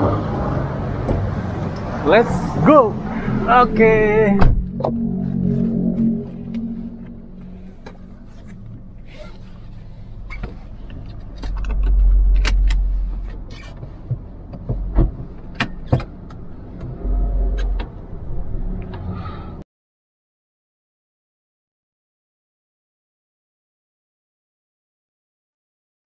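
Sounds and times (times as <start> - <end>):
car engine hum: 0.0 - 19.6
loud low rumbles: 0.0 - 19.6
clicks and knocks inside car: 13.7 - 16.4.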